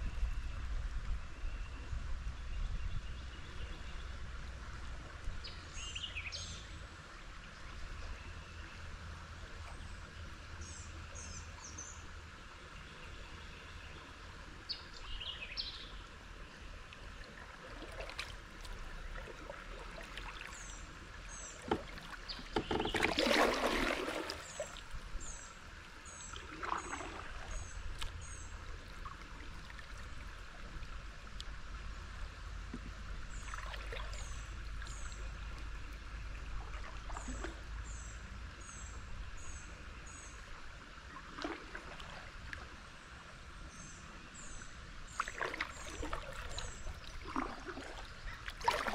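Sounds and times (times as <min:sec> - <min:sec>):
paddle strokes splashing: 0:17.0 - 0:31.1, 0:32.7 - 0:38.0, 0:41.1 - 0:42.8, 0:45.1 - 0:48.9.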